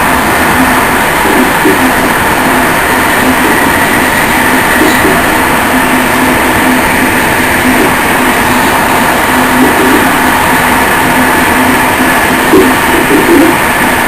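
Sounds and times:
constant train hum: 0.0s - 14.0s
train wheels rushing on rails: 0.0s - 14.0s.

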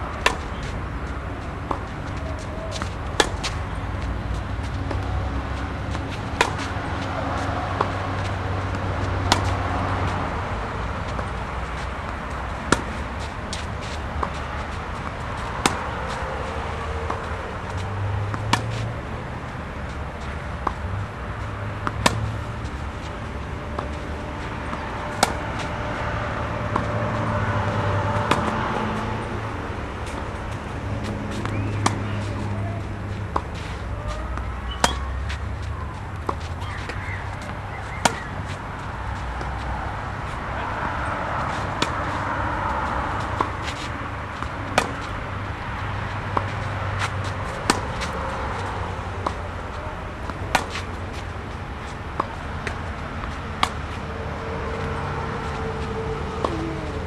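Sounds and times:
low traffic hum: 0.0s - 57.0s
tennis racket hitting ball: 0.0s - 57.0s.

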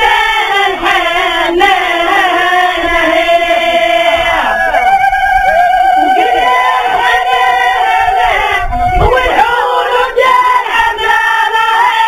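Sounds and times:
voices singing a slow chant: 0.0s - 12.0s.

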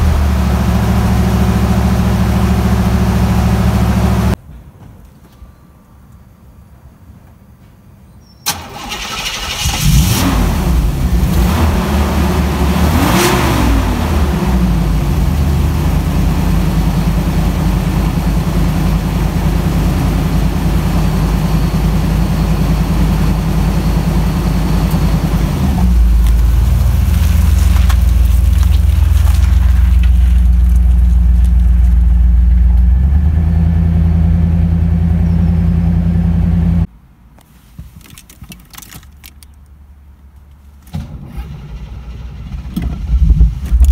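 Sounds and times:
car engine idling: 0.0s - 4.4s, 8.5s - 36.9s
car engine starting and revving: 0.0s - 4.4s, 8.5s - 31.9s, 40.9s - 43.9s.

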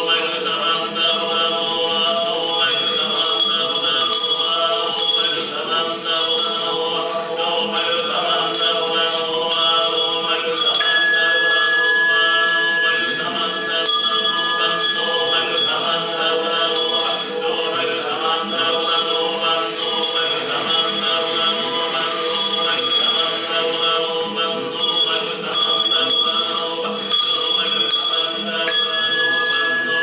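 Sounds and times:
high steady tone: 10.8s - 18.4s, 28.6s - 30.0s
layered sustained tone music: 10.8s - 18.6s.

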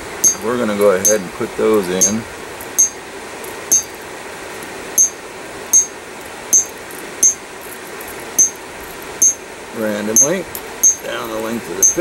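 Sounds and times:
steady hiss: 0.0s - 12.0s
hammer striking metal punch: 0.2s - 0.4s, 2.8s - 3.0s, 3.7s - 4.0s, 5.0s - 5.2s, 5.8s - 6.0s, 6.6s - 7.4s, 8.4s - 8.6s, 10.2s - 11.0s.

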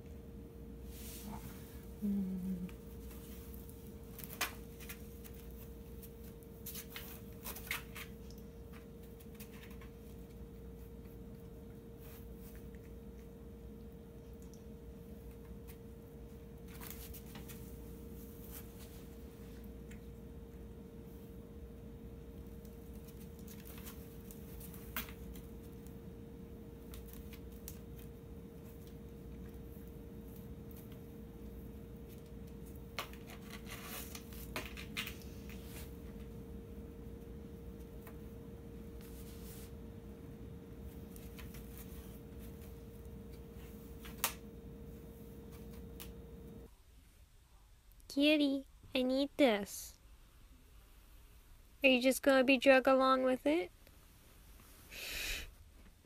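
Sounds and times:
steady hum: 0.0s - 47.1s
cat scratching in cardboard box: 33.0s - 36.0s.

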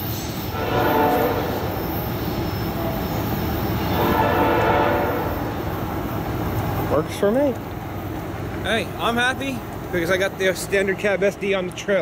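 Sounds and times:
low train rumble: 0.0s - 12.0s
train horn blasts: 0.4s - 3.1s, 3.8s - 5.7s.

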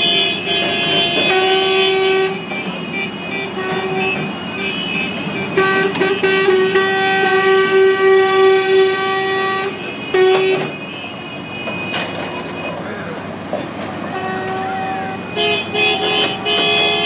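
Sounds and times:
horn blowing: 0.0s - 12.8s, 14.0s - 17.0s.

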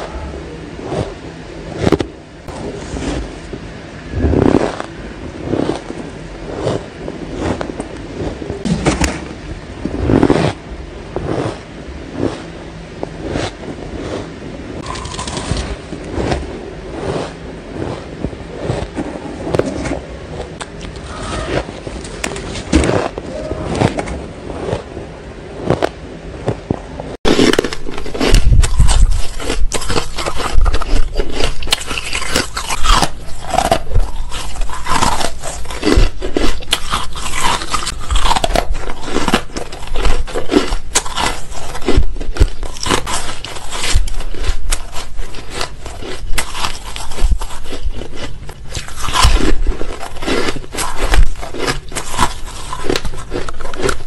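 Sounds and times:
chewing crunchy ice: 13.2s - 19.8s, 27.3s - 54.0s.

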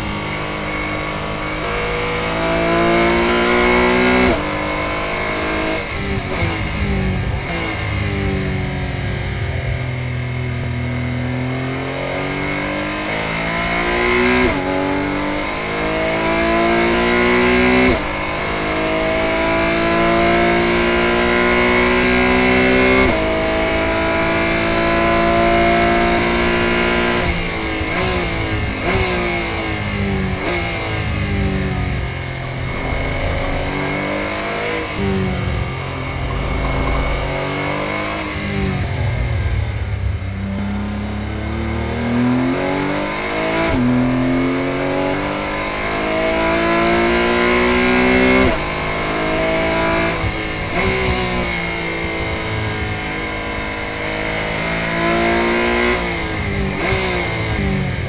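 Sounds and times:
race car engine shifting gears: 30.4s - 40.9s.

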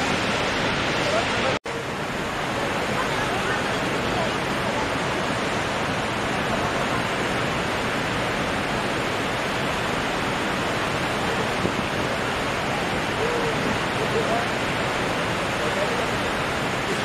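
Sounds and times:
floodwater rushing: 0.0s - 17.0s.

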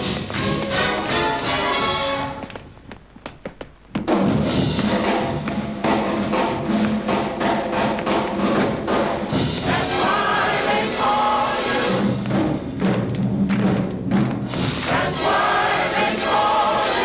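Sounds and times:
choir singing: 9.6s - 12.2s, 14.8s - 17.0s.

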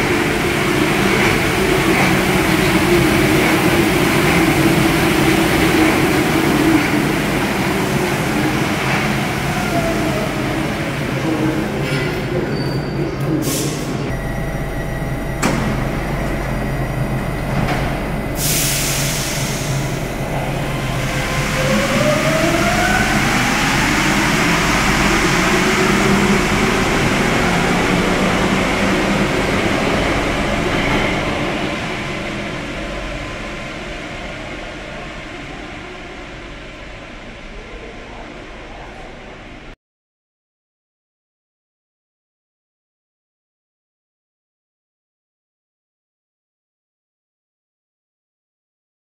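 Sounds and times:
train motor whine: 14.1s - 23.5s
burst of hiss: 18.4s - 20.0s.

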